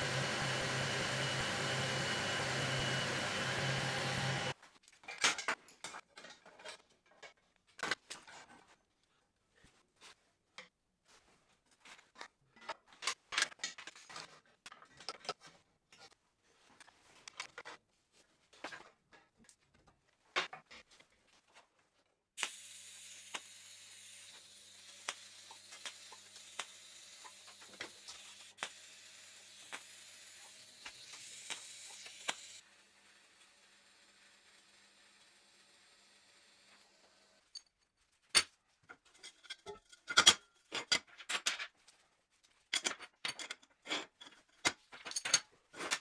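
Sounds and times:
welding arc hissing: 22.4s - 32.6s.

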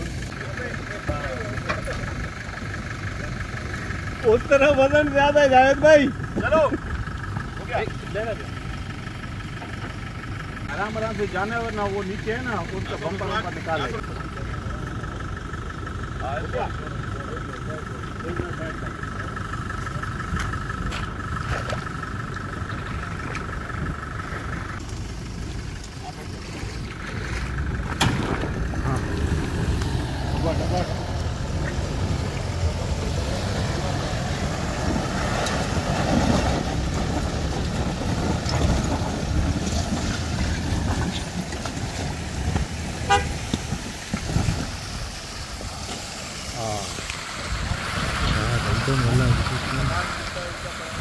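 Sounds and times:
truck engine running: 0.0s - 51.0s
short horn toot: 43.1s - 43.4s.

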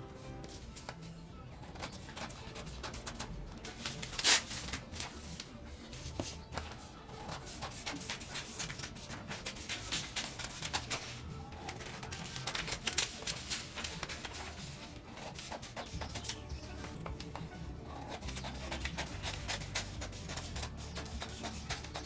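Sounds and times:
paper rustling: 0.4s - 17.4s, 18.0s - 22.0s
scissors snipping paper: 1.6s - 22.0s.

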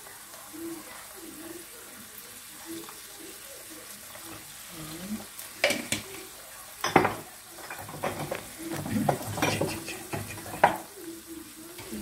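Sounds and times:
meat sizzling: 0.0s - 12.0s
wooden spoon scraping a pan: 7.6s - 10.8s.

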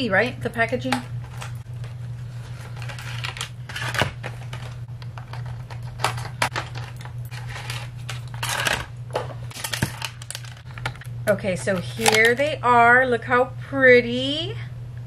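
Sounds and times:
steady low hum: 0.0s - 15.0s
packaging rustling and scraping: 1.2s - 12.4s.

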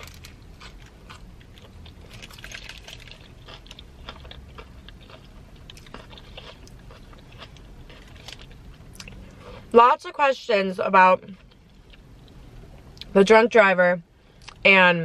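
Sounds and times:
person biting and chewing: 0.0s - 9.3s
low steady hum: 0.0s - 15.0s.

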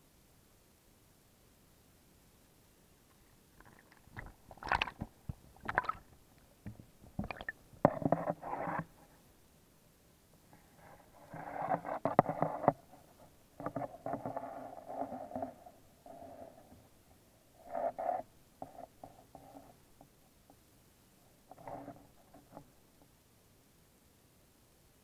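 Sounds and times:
dull underwater rumbling: 3.6s - 7.6s.

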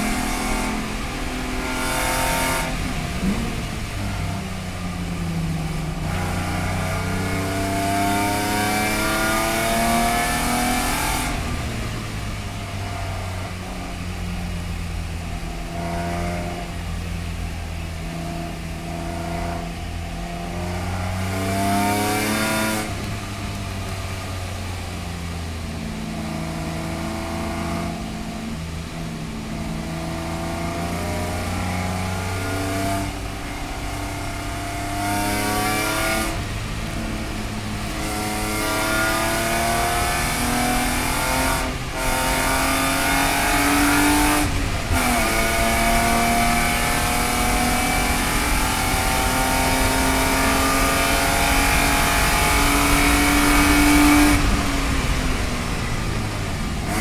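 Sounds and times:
race car engine revving: 0.0s - 57.0s.

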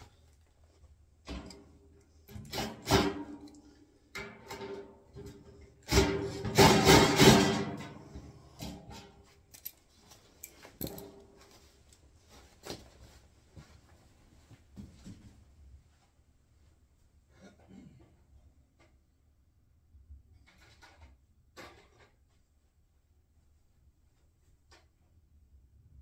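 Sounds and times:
handling noises: 9.2s - 15.2s
metal tools clattering on wheelbarrow: 10.4s - 11.2s.

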